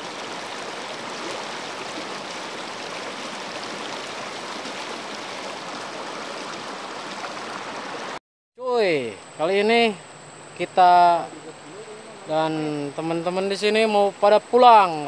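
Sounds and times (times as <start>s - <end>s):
river water rushing over boulders: 0.0s - 8.2s.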